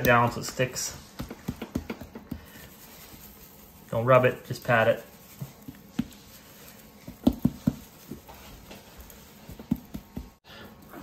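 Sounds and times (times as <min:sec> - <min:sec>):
hand slapping raw goose skin: 0:00.0 - 0:02.7.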